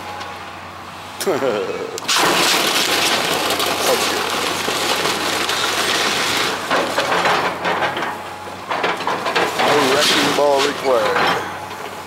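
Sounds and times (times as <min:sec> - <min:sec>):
timber cracking and splintering: 0:02.0 - 0:07.2
debris crashing down: 0:02.0 - 0:11.7.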